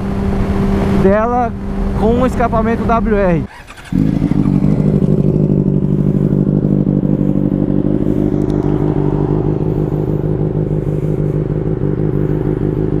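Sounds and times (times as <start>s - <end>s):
motorcycle engine idling: 3.1s - 13.0s.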